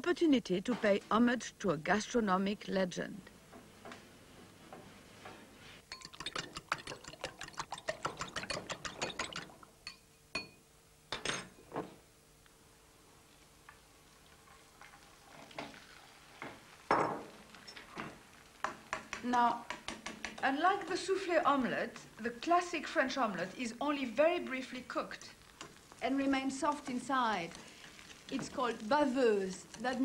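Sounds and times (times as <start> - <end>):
fork beating eggs in glass bowl: 5.9 - 10.0.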